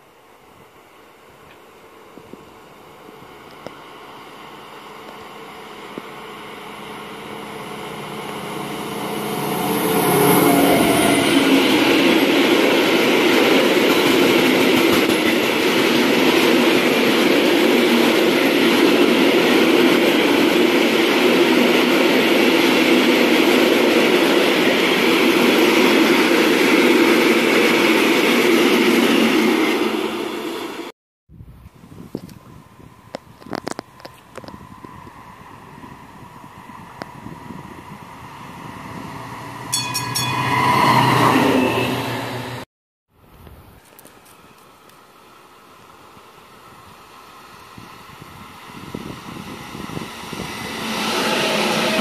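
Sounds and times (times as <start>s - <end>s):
locomotive high whine: 0.0s - 42.7s, 43.9s - 52.0s
freight train rumble: 0.2s - 42.6s, 43.7s - 52.0s
train wheels rolling: 7.8s - 30.7s.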